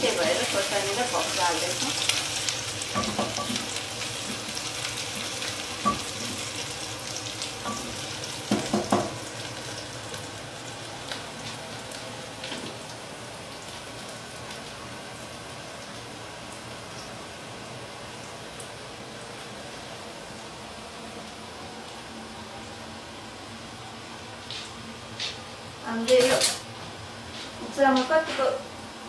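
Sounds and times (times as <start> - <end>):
food sizzling in a pot: 0.0 - 18.8, 24.4 - 26.7.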